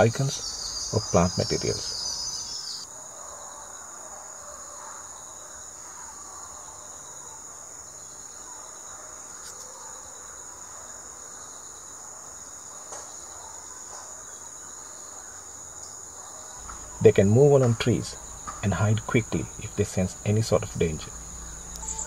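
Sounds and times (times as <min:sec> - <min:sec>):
insect chorus trilling: 0:00.0 - 0:22.0
faint ticks: 0:21.6 - 0:22.0.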